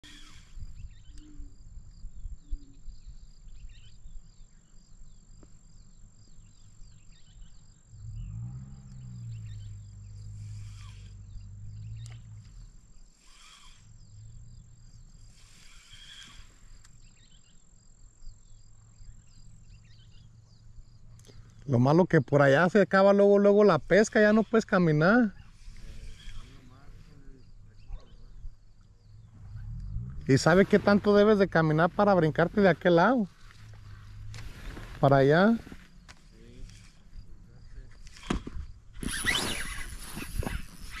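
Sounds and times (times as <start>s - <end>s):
wind rumbling on microphone: 0.2s - 4.4s, 25.3s - 41.0s
fishing reel being cranked: 13.2s - 13.9s, 39.0s - 41.0s.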